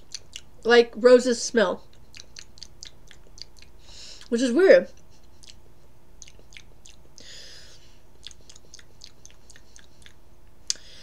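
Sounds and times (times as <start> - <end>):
chewing mouth sounds: 0.0 - 0.6, 1.8 - 4.3, 5.0 - 10.8.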